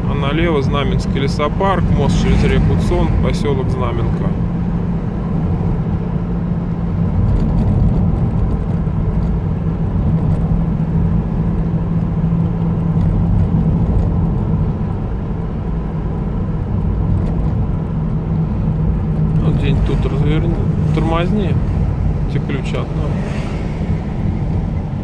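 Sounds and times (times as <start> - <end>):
car engine and tyre drone: 0.0 - 25.0.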